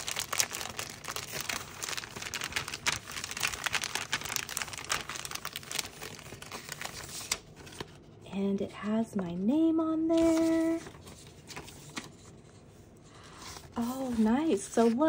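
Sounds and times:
packaging crinkling: 0.0 - 8.0.

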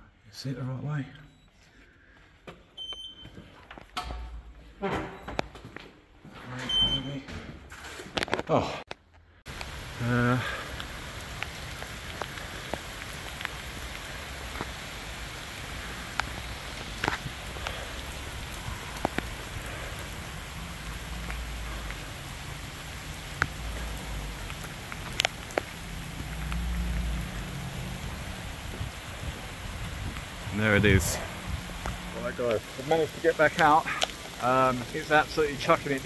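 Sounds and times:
heavy rain falling: 9.5 - 36.0
sharp drip ticks: 15.7 - 27.4.

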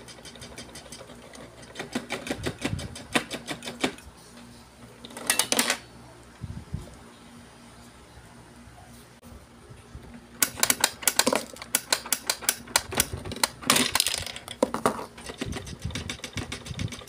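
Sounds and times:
toy mechanism clicking: 10.4 - 14.6, 15.2 - 17.0.

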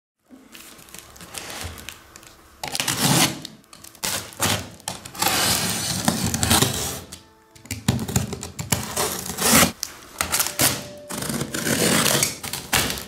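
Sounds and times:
box cutter scraping packing tape: 2.6 - 7.2, 8.0 - 13.0.

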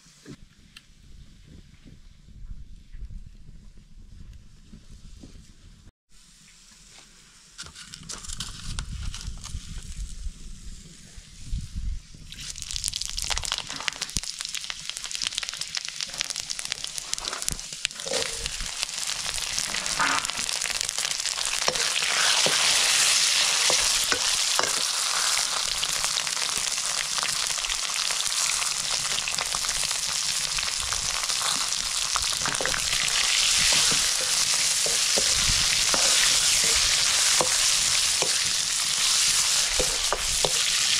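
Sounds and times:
meat sizzling in oil: 12.4 - 40.9.

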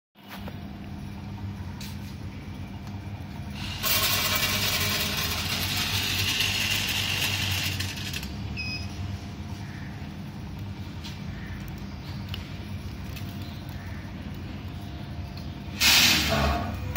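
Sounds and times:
low machine hum: 0.2 - 16.9.

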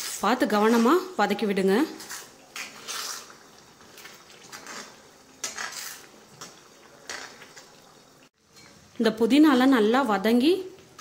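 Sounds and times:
paste frying in oil: 0.0 - 11.0
ladle scraping paste in pan: 2.0 - 7.7.

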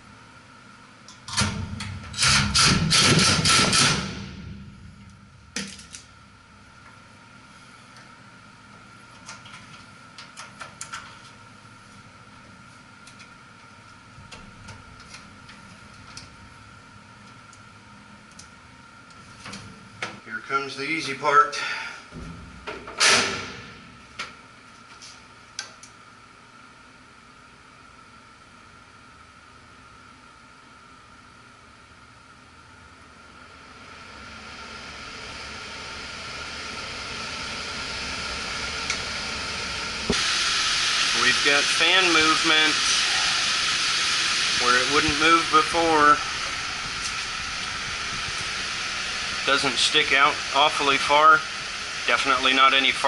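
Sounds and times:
blower motor starting up: 33.5 - 53.0
rushing air: 40.0 - 52.5.

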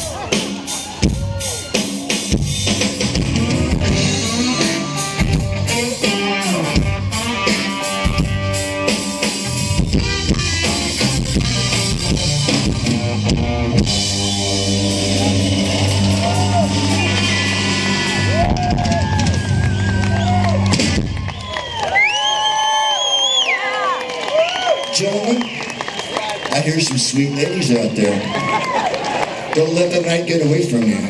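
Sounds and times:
busy drumming: 0.0 - 21.5
live rock band playing: 0.0 - 22.0
bending lead guitar notes: 2.6 - 21.0.

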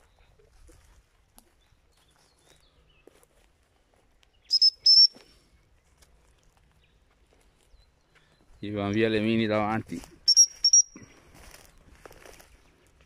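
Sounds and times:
dog whistle pips: 4.5 - 5.2, 10.3 - 11.0.

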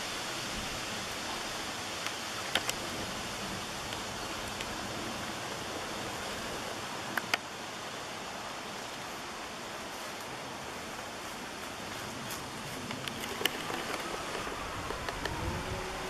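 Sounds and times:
outdoor ambience hiss: 0.0 - 16.0
sharp clicks: 2.0 - 2.8, 7.1 - 7.5, 12.9 - 15.5.

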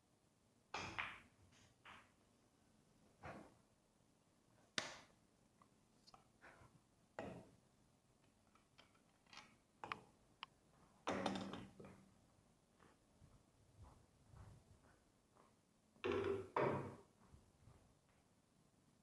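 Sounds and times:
small clicks and knocks: 8.2 - 12.0.

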